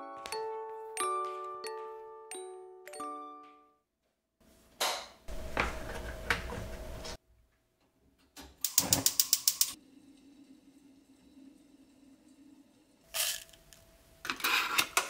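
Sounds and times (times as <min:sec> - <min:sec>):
gas burner running: 0:05.3 - 0:07.2, 0:08.6 - 0:14.1
gas stove igniter clicking: 0:08.6 - 0:09.8.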